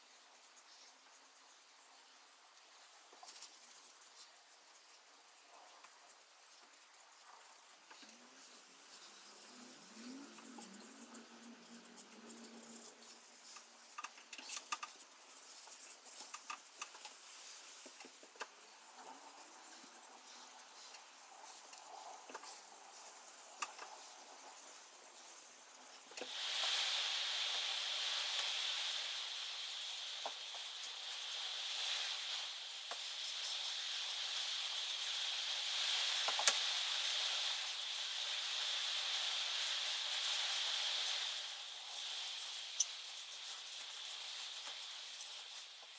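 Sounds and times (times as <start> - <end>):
steady hiss: 0.0 - 45.9
steel wool rubbing wood: 7.4 - 26.8.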